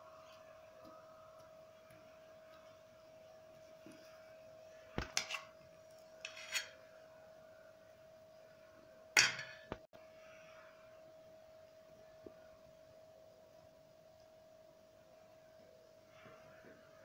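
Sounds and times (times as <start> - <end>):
faint steady hum: 0.0 - 17.0
metal spoon scraping steel bowl: 5.1 - 6.9.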